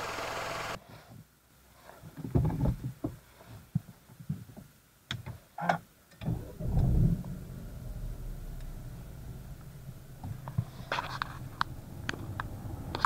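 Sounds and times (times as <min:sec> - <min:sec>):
faint steady hum: 0:00.0 - 0:00.8, 0:06.0 - 0:13.0
knocks and rustles of handling: 0:01.9 - 0:05.5.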